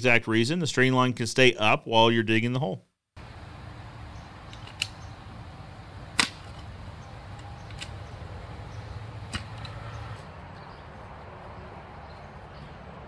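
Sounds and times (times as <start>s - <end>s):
steady low hum: 3.2s - 13.0s
post hole digger chunking into soil: 6.1s - 6.8s, 9.2s - 10.2s.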